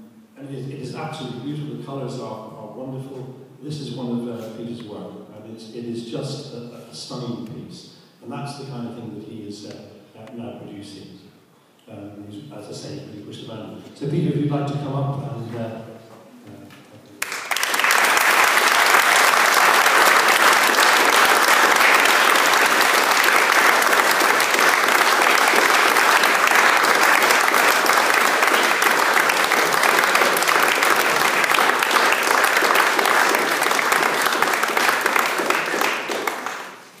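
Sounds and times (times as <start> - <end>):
audience applauding: 17.2 - 37.0.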